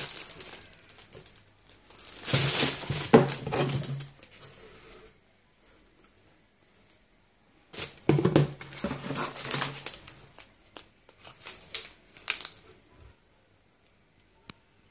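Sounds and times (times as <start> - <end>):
foil sachets crinkling: 0.0 - 4.4, 7.8 - 12.7.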